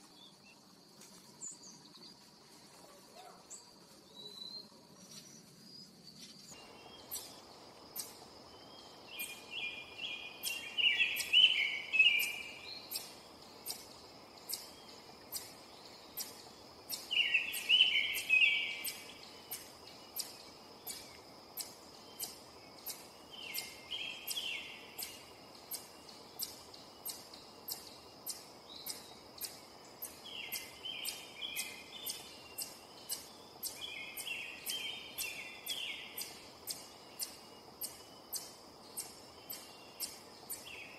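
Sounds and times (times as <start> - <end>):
faint high insect hum: 0.0 - 40.9
songbird warbling: 8.8 - 15.6, 16.2 - 40.9.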